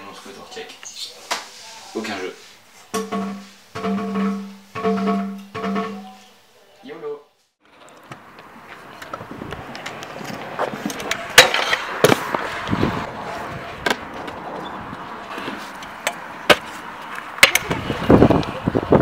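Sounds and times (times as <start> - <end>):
scooter wheels rolling on asphalt: 7.6 - 19.0
scooter deck clacking on ground: 7.8 - 12.5, 15.4 - 18.5.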